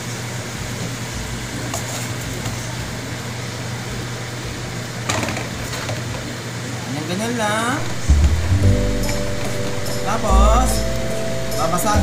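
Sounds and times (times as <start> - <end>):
low hum: 7.8 - 12.0.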